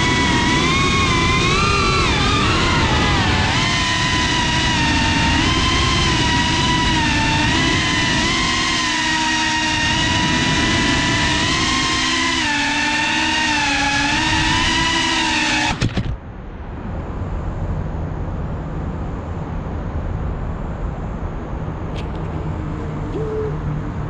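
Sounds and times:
quadcopter propellers whining: 0.0 - 16.2, 22.0 - 24.0
outdoor rumble: 0.0 - 24.0
motor clicks: 15.5 - 16.2.

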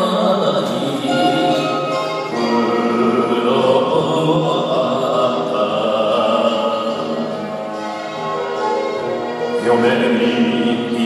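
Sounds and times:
man singing into a microphone: 0.0 - 7.5, 9.5 - 11.0
karaoke backing track: 0.0 - 11.0.

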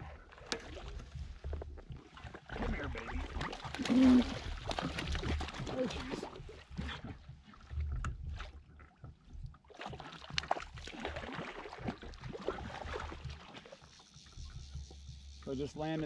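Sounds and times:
water slopping: 0.0 - 16.0
fish splashing at the surface: 2.4 - 6.4, 9.7 - 13.8.

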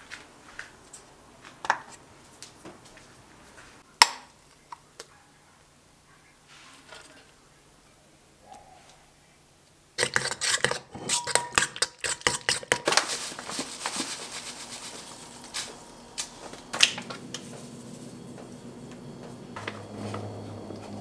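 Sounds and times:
clinks in a steel mixing bowl: 10.0 - 12.9
ingredients being poured: 10.0 - 20.3.

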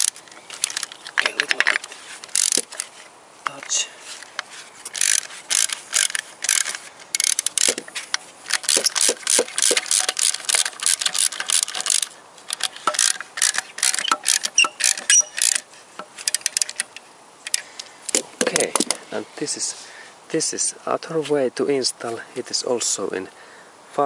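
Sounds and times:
ratchet wrench clicking: 0.0 - 0.9, 2.3 - 2.9, 4.9 - 7.8, 8.5 - 15.6.

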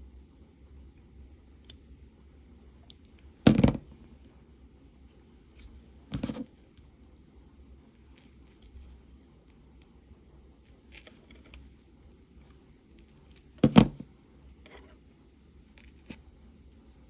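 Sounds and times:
small clicks of wire and tools: 1.6 - 1.8.

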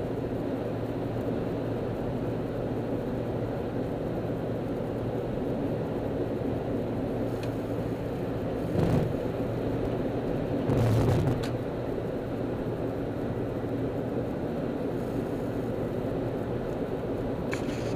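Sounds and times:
car road and engine noise: 0.0 - 17.9
car bumps: 8.7 - 9.2, 10.7 - 11.6.

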